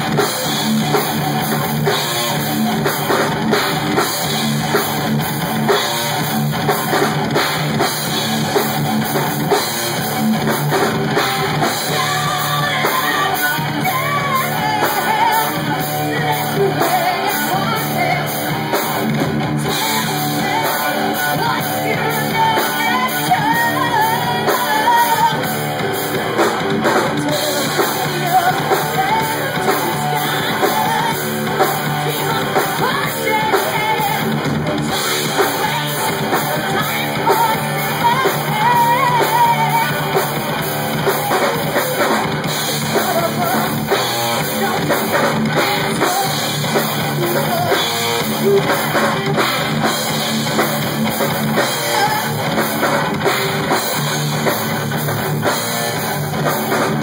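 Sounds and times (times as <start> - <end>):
drum kit: 0.0 - 57.0
electric guitars: 0.0 - 57.0
woman singing: 11.0 - 19.0, 19.6 - 26.1, 26.9 - 49.4, 51.6 - 52.8.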